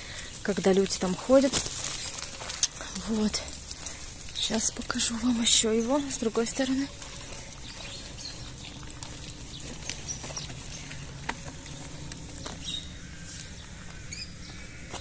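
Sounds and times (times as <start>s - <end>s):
steady low hum: 0.0s - 15.0s
bird chirps: 7.5s - 15.0s.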